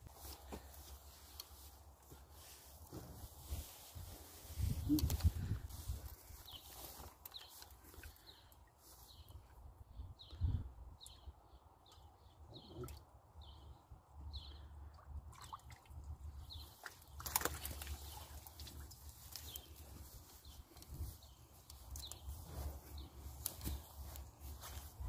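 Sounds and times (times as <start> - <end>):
low wind rumble: 3.6 - 6.1
pond water splashing: 15.0 - 20.5
water dripping from net: 16.8 - 19.6.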